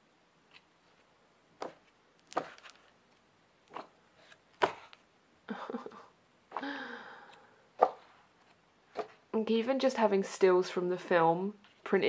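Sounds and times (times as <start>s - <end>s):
book pages turning: 0.5s - 5.0s.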